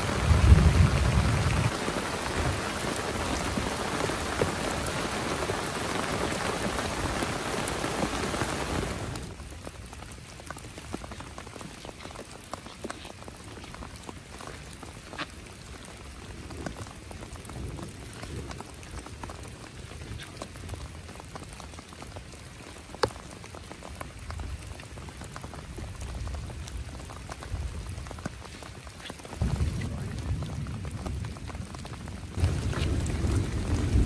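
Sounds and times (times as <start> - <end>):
heavy rain: 0.0 - 34.0
raindrops ticking: 0.0 - 34.0.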